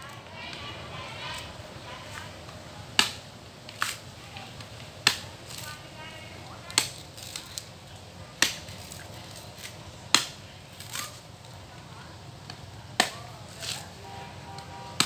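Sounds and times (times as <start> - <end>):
blade chopping palm: 2.9 - 4.0, 5.0 - 5.6, 8.4 - 11.2, 12.5 - 13.9.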